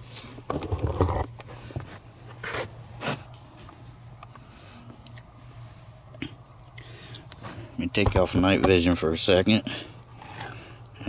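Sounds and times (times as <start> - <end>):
night insects trilling: 0.0 - 11.0.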